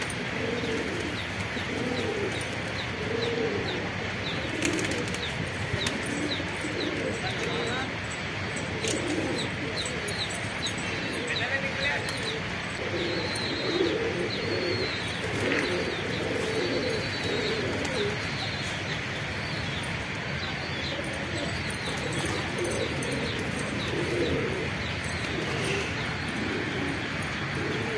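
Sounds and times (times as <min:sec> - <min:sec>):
pigeons cooing: 0:00.0 - 0:27.9
small birds chirping: 0:00.0 - 0:27.9.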